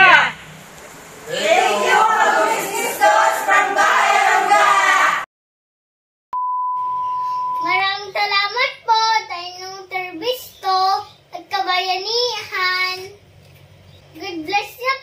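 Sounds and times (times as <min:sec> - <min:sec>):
test-pattern beep: 0:06.4 - 0:07.7
young child singing: 0:07.6 - 0:13.2.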